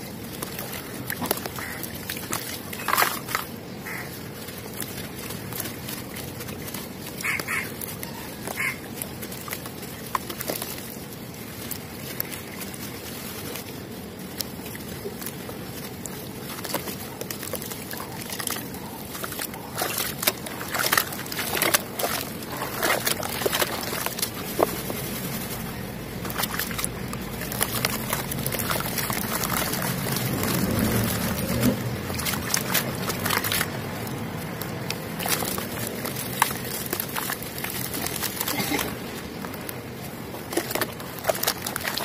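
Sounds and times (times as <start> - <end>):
crumbs pattering down: 0.0 - 42.0
cement chunks crunching and snapping: 15.2 - 42.0.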